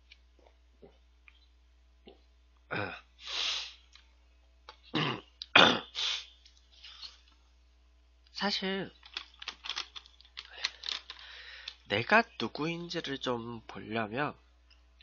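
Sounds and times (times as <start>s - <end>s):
man coughing: 4.9s - 6.0s.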